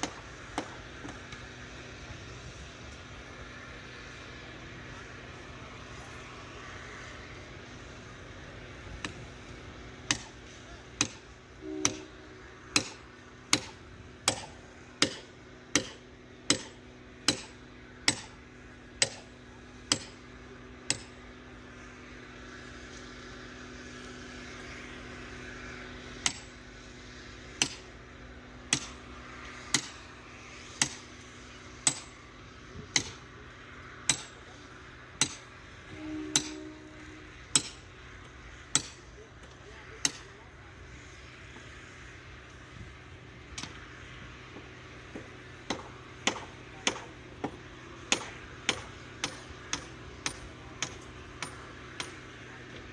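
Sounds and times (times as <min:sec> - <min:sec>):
hammer striking steel rail: 0:00.0 - 0:01.2, 0:10.0 - 0:18.4, 0:19.0 - 0:20.2, 0:20.8 - 0:21.2, 0:26.2 - 0:26.6, 0:27.6 - 0:27.9, 0:28.7 - 0:29.0, 0:29.7 - 0:30.0, 0:30.8 - 0:31.1, 0:31.8 - 0:32.1, 0:32.9 - 0:33.2, 0:34.1 - 0:34.4, 0:35.2 - 0:37.9, 0:38.6 - 0:39.1, 0:40.0 - 0:40.4, 0:45.6 - 0:52.3.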